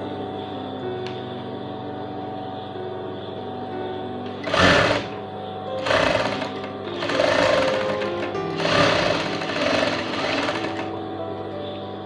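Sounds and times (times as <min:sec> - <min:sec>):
sewing machine stitching: 0:04.4 - 0:05.2, 0:05.8 - 0:10.9.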